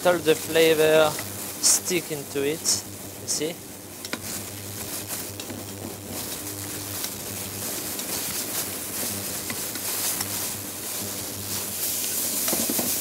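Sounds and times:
low steady hum: 0:00.0 - 0:12.2
onions sizzling in oil: 0:00.0 - 0:13.0
wooden spoon tapping and scraping: 0:12.0 - 0:13.0.

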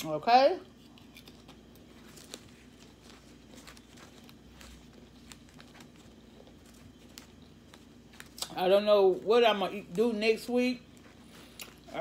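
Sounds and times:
chewing potato chips: 0:00.8 - 0:08.6
paper wrapper crackling: 0:01.1 - 0:11.1.

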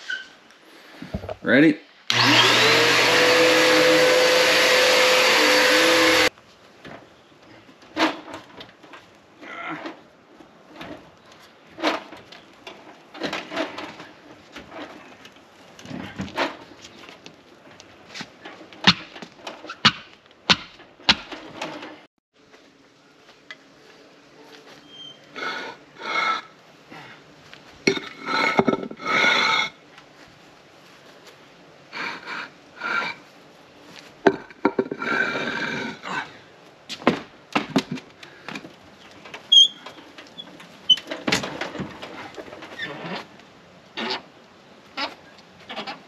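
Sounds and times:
vacuum cleaner motor running: 0:02.1 - 0:06.3
steady background noise: 0:06.2 - 0:46.0.

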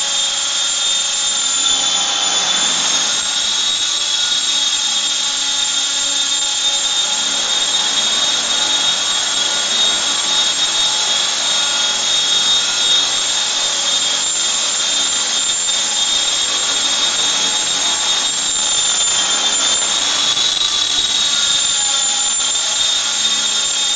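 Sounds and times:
helicopter motor whine: 0:00.0 - 0:23.9
rotor blades rushing: 0:00.0 - 0:23.9.

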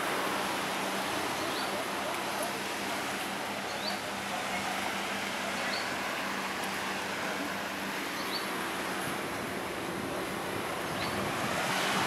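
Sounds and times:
outdoor ambient noise: 0:00.0 - 0:12.0.

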